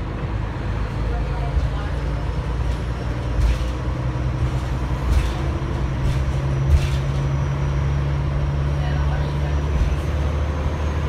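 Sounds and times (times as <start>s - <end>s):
bus engine drone: 0.0s - 11.0s
road and wind noise: 0.0s - 11.0s
knocks and rattles: 3.1s - 7.6s.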